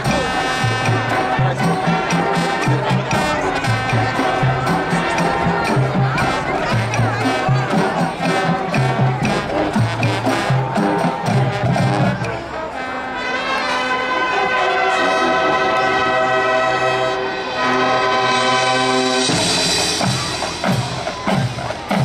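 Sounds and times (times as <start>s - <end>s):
marching band drums: 0.0s - 13.4s, 17.5s - 22.0s
brass holding loud chords: 0.0s - 22.0s.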